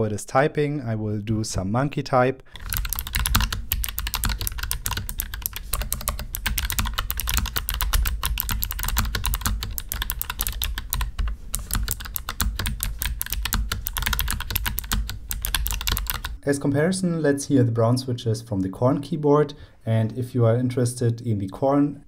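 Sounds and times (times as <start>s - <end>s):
mechanical keyboard typing: 2.6s - 16.4s.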